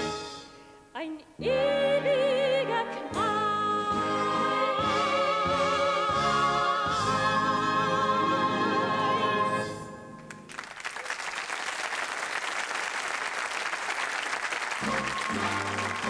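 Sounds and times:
music: 0.0 - 10.5, 14.8 - 16.0
choir and solo singer: 1.4 - 9.8
audience applause: 10.3 - 16.0.

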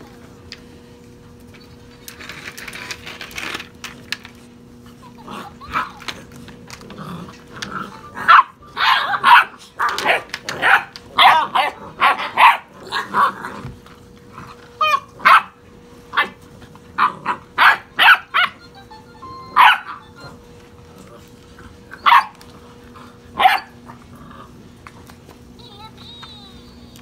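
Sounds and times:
puppies yapping and barking: 7.9 - 13.3, 17.0 - 20.6, 21.7 - 22.5, 23.4 - 23.9.

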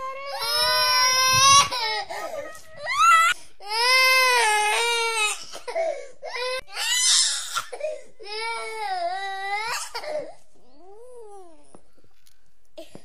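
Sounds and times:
high-pitched crying: 0.0 - 5.3.

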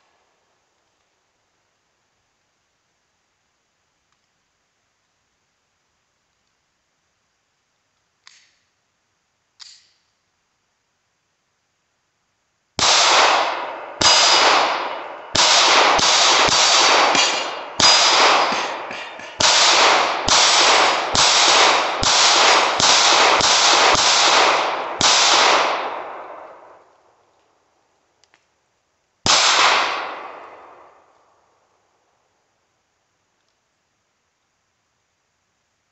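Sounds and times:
echoing gunshots: 12.8 - 26.8, 29.2 - 31.1
metal target ringing: 15.4 - 22.0.

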